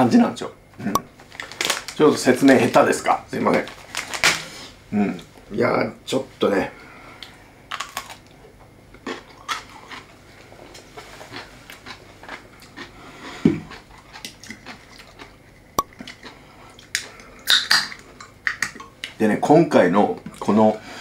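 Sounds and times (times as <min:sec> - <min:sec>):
crunchy bite and chewing: 0:07.7 - 0:08.4, 0:09.0 - 0:17.9.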